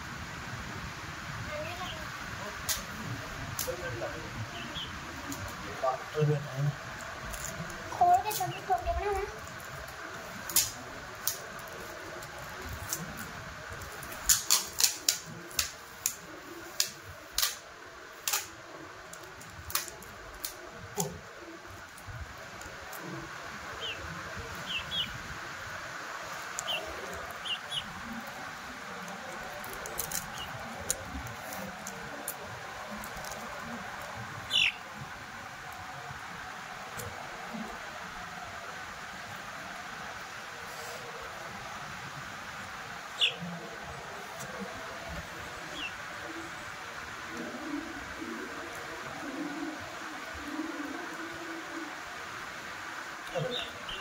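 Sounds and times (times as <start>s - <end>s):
wooden sticks clicking and tapping: 13.8s - 16.2s, 19.1s - 21.2s.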